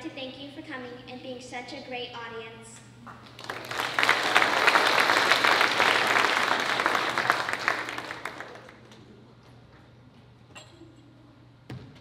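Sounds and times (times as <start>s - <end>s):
audience applause: 3.4s - 8.9s.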